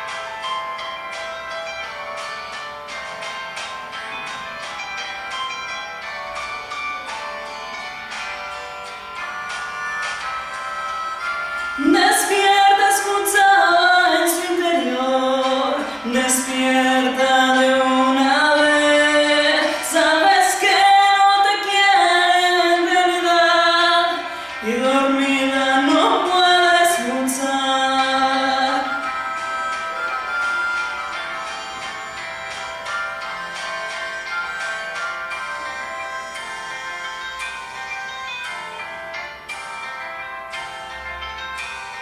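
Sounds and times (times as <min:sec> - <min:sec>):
woman singing slow melody: 0:11.8 - 0:29.3.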